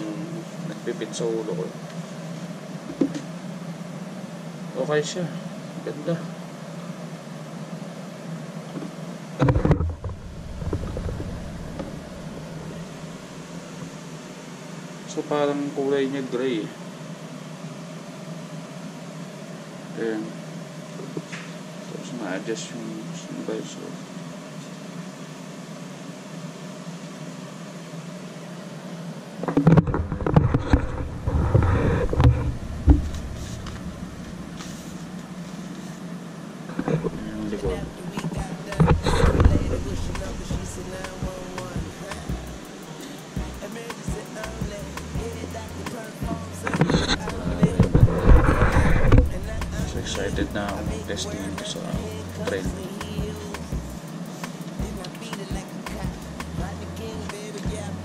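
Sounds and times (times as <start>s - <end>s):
room hum: 0.0s - 58.0s
low rumble: 9.8s - 13.6s, 30.1s - 35.0s, 37.1s - 42.6s, 46.2s - 52.2s.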